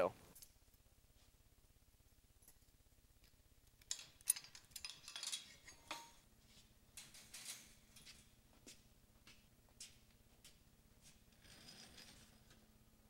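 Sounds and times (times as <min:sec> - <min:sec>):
gate latch clinking and rattling: 0:03.8 - 0:06.2.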